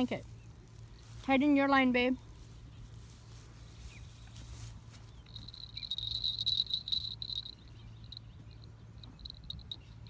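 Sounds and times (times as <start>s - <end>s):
insect trilling and chirping: 5.2s - 8.3s.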